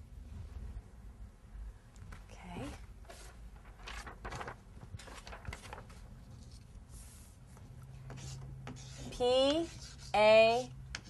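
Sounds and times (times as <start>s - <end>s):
paper rustling: 2.6s - 7.6s.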